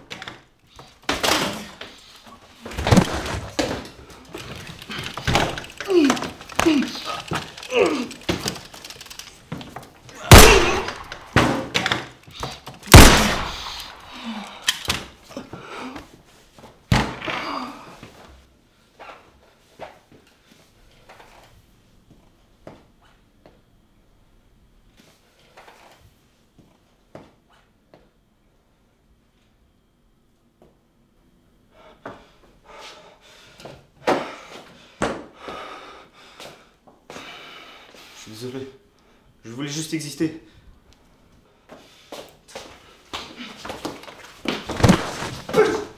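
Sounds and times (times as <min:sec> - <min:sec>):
heavy thumps and slams: 0:02.7 - 0:03.9, 0:10.2 - 0:12.1.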